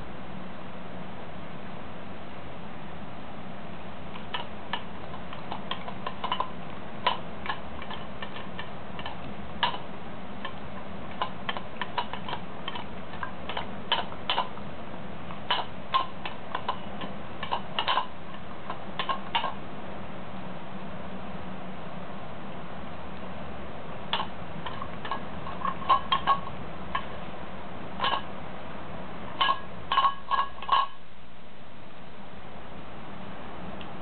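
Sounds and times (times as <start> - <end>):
dog eating from metal bowl: 4.2 - 14.6, 15.4 - 19.6, 24.1 - 27.2, 28.0 - 28.3, 29.4 - 31.0.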